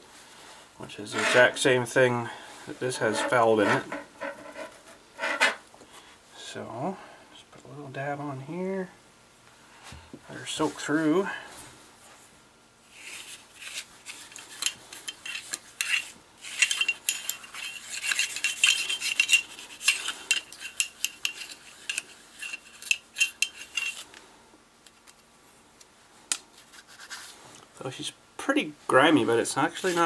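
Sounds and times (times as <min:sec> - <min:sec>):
metal rod scraping through barrel: 0:01.0 - 0:01.8, 0:02.8 - 0:05.6.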